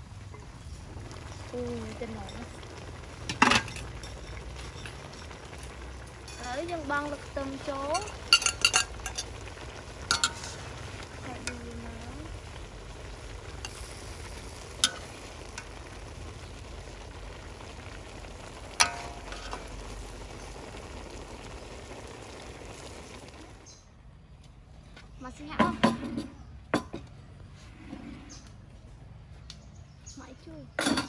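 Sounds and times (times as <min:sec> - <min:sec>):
broth simmering in a wok: 0:00.0 - 0:28.8
metal ladle clinking on wok: 0:08.0 - 0:09.3, 0:10.1 - 0:10.6.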